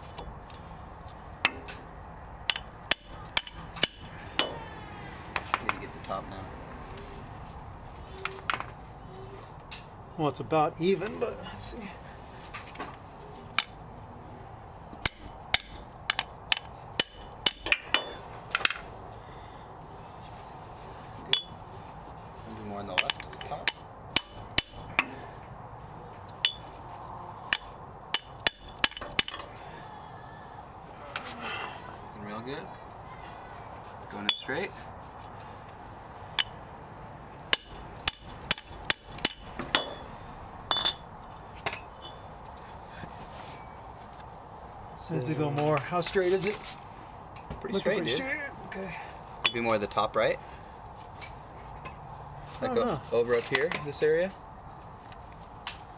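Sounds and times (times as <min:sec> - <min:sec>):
hammer striking metal: 0:02.5 - 0:04.6, 0:15.0 - 0:18.2, 0:23.0 - 0:25.2, 0:27.5 - 0:29.4, 0:37.5 - 0:40.0.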